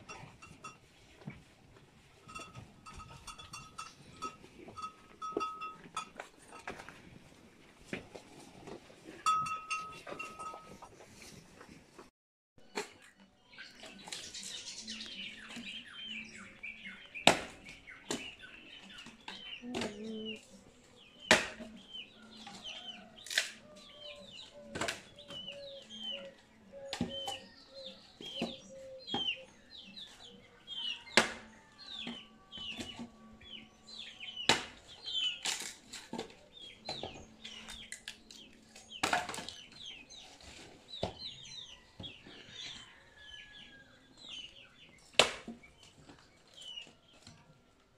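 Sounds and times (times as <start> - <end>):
axe striking firewood: 17.2 - 18.3, 21.3 - 21.7, 31.1 - 31.4, 34.5 - 34.8, 45.2 - 45.6.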